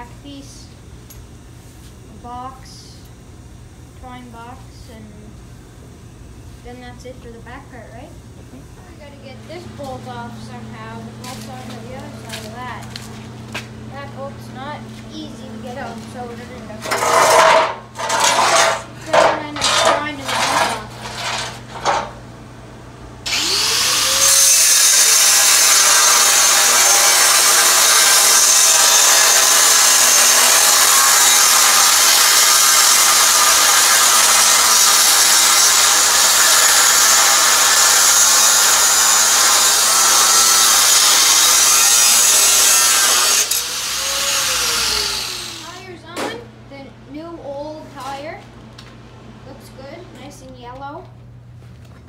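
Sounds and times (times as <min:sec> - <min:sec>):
angle grinder cutting steel bolt: 0:16.8 - 0:22.1, 0:23.3 - 0:45.7.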